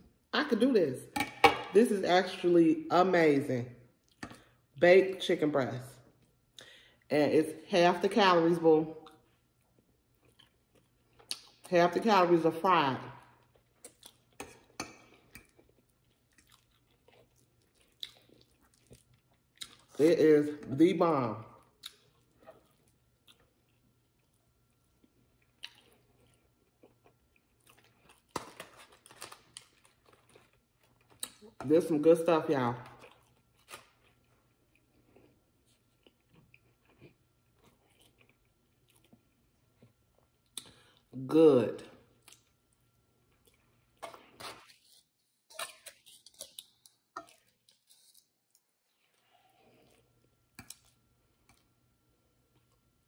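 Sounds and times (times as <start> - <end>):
chewing food: 9.0 - 11.7, 13.1 - 20.0, 21.5 - 31.7, 32.8 - 41.2, 42.0 - 53.0
fork crinkling foil packet: 27.8 - 31.4, 44.0 - 48.4.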